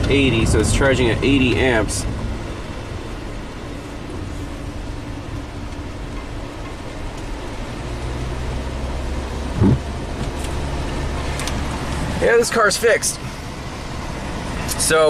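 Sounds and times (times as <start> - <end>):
tyre noise on wet road: 0.0 - 15.0
loud low thump: 9.6 - 9.8.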